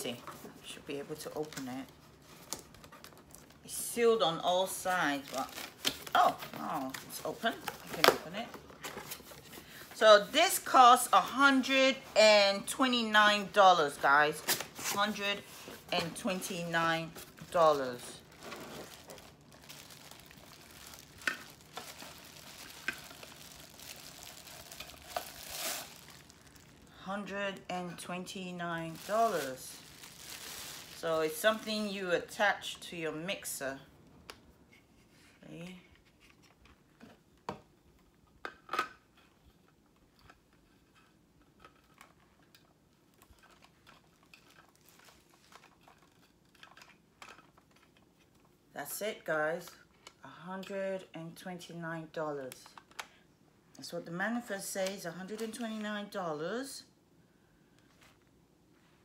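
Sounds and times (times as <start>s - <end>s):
plastic wrapping crinkling: 1.1s - 3.7s, 4.7s - 9.8s, 14.5s - 31.8s, 41.6s - 48.4s.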